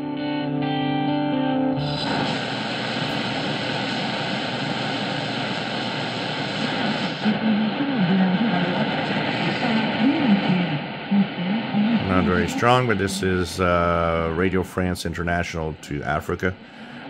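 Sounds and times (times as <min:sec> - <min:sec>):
guitar music from radio speaker: 0:00.0 - 0:07.8
shortwave static hiss: 0:01.8 - 0:17.0
faint radio voice: 0:11.4 - 0:17.0.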